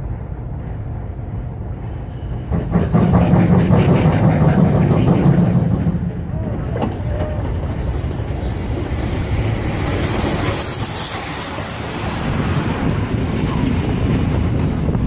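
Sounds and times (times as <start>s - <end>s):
steam locomotive wheels rumbling: 0.0s - 15.0s
loud hiss of steam: 8.5s - 14.0s.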